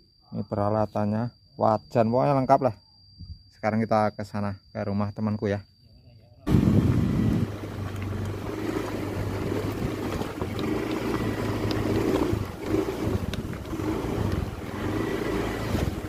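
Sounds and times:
wind noise on microphone: 3.2 - 3.5, 6.5 - 16.0
scooter engine running: 6.5 - 16.0.

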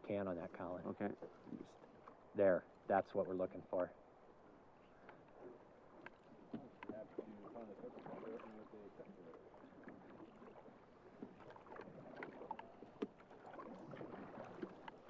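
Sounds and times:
water lapping against boat hull: 0.0 - 15.0
small knocks and ticks: 6.0 - 7.4, 11.2 - 13.3.

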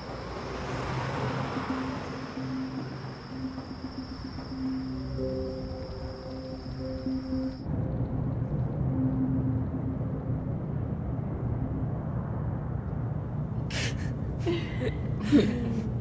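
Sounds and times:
breathy laugh: 13.7 - 15.9.

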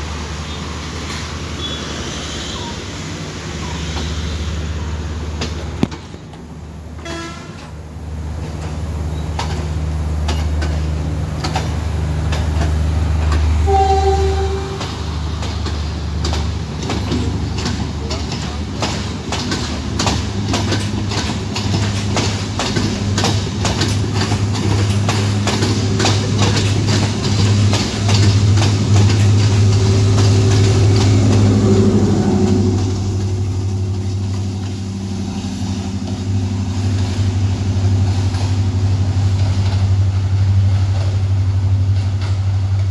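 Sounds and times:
train wheels clattering over joints: 7.4 - 42.9
diesel engine drone: 20.5 - 42.9.

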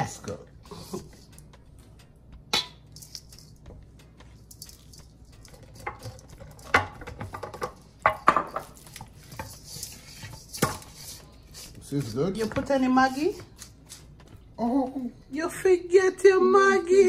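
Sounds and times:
hands rubbing seasoning rustle: 8.5 - 14.2.

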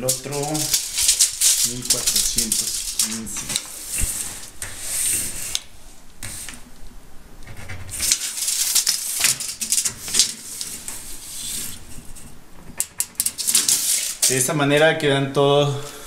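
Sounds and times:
scratchy strokes on cabinet panel: 0.1 - 5.6, 6.2 - 6.6, 9.9 - 12.2.

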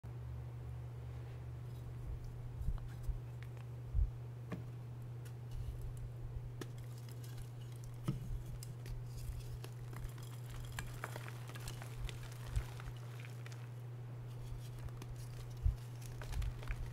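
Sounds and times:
steady low hum: 0.1 - 16.9
chalk cracking and crumbling: 6.6 - 16.9.

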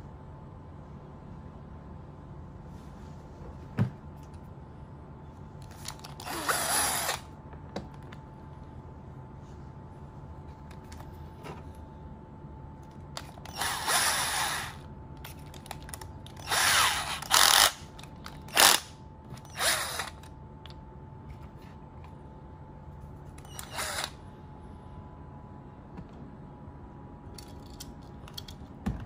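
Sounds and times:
cordless drill whirring: 5.8 - 7.3, 13.2 - 14.9, 16.3 - 17.9, 18.5 - 20.3, 23.4 - 24.2
drill chuck ratcheting: 13.2 - 14.8, 16.3 - 20.3, 23.4 - 24.2.

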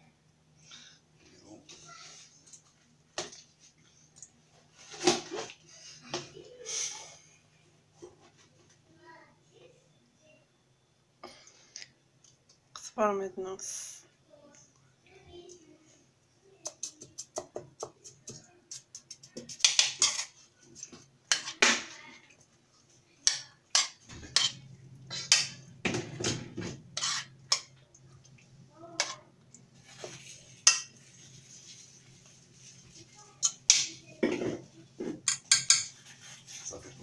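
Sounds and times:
low steady hum: 20.4 - 37.0
metal spoon scraping steel pot: 23.7 - 25.6, 27.0 - 27.7.

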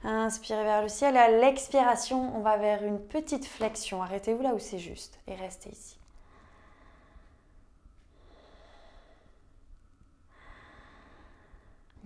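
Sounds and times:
slow breathing: 6.1 - 12.0.

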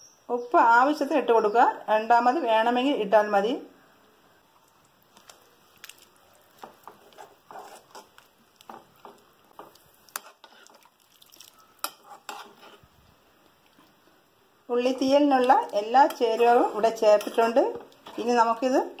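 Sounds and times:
spoon stirring thick curry: 5.0 - 14.1, 14.8 - 19.0
spoon clinking and scraping pan: 6.6 - 10.9, 11.5 - 12.8.

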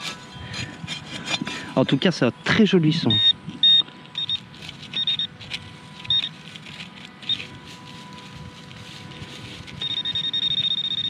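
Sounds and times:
scratching in straw and dirt: 4.0 - 11.0
short high beeps: 9.8 - 11.0.

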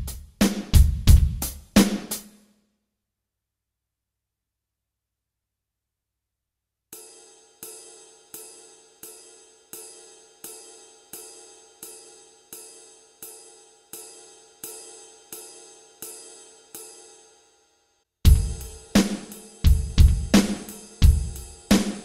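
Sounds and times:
electronic ride cymbal strokes: 7.0 - 17.6, 18.3 - 22.0.

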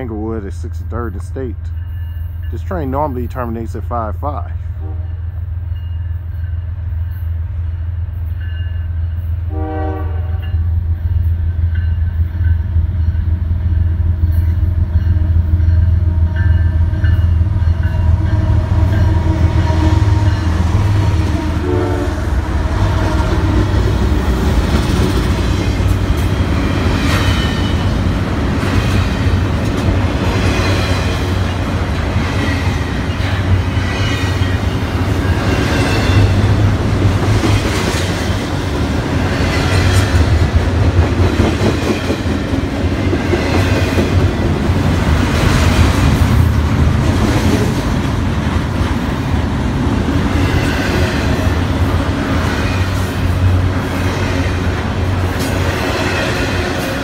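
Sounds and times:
train horn blast: 4.8 - 5.2, 9.4 - 10.6, 18.0 - 24.1
diesel locomotive rumble: 9.4 - 57.0
train wheels clacking on rails: 23.0 - 49.0.

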